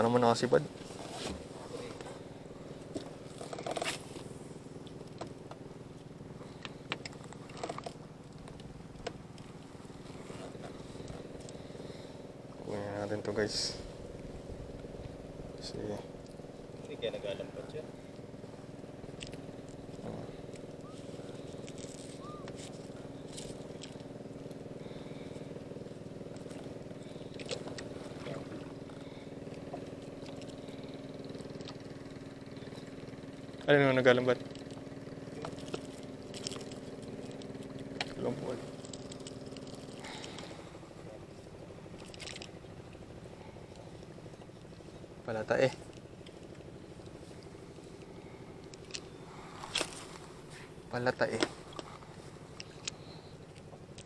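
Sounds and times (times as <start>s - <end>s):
small engine puttering: 0.0s - 54.0s
fishing tackle clicks: 48.0s - 50.0s, 52.6s - 54.0s.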